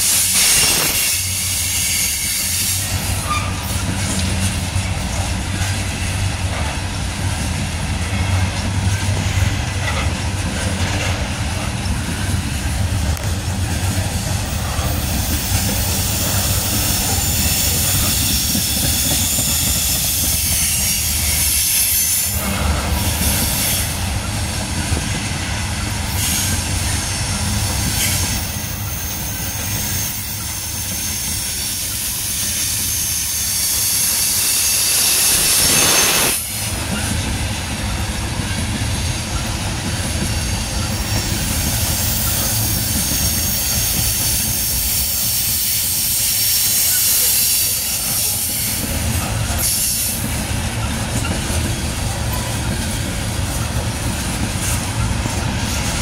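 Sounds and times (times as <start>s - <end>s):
high wheel squeal: 0.0s - 4.3s, 14.5s - 24.9s, 25.8s - 37.3s, 38.5s - 52.9s
train wheels rumbling and clacking: 0.0s - 56.0s.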